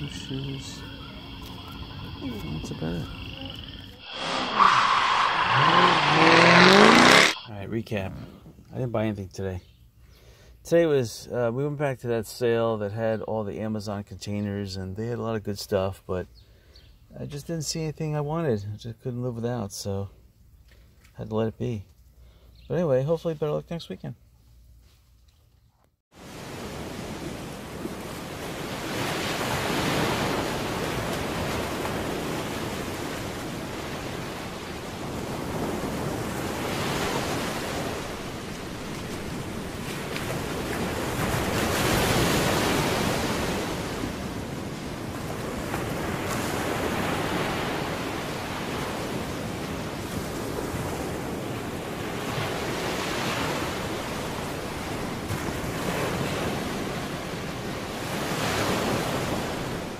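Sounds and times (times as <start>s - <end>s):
waves washing onto shore: 26.2s - 59.9s.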